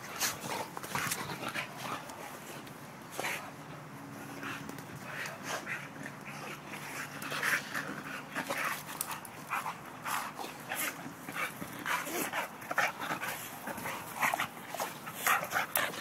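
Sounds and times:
dogs playing and breathing: 0.0 - 16.0.

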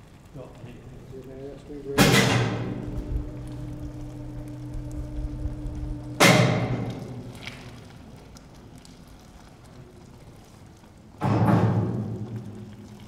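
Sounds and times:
steady low hum: 0.1 - 10.2
deep drum hits: 1.8 - 7.7.

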